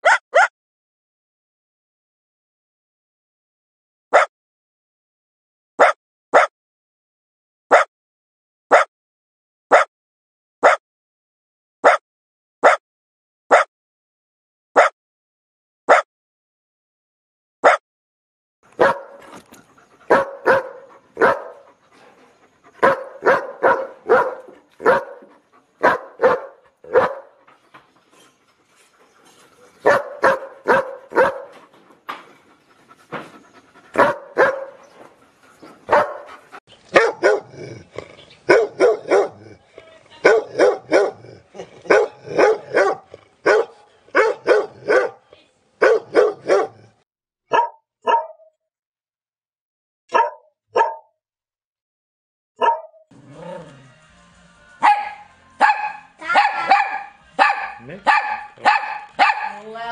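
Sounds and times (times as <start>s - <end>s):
dogs barking: 0.0s - 0.5s, 4.1s - 4.3s, 5.8s - 6.5s, 18.7s - 27.6s, 29.8s - 31.7s, 33.1s - 35.1s, 35.7s - 48.5s, 50.1s - 51.1s, 52.6s - 53.6s, 54.8s - 59.9s
deep dog barking: 5.8s - 6.5s, 18.8s - 19.3s, 20.1s - 21.7s, 22.8s - 27.4s, 29.8s - 31.6s, 33.9s - 34.8s, 35.9s - 45.2s, 45.8s - 48.5s, 50.1s - 51.1s, 52.6s - 53.0s, 54.8s - 59.7s.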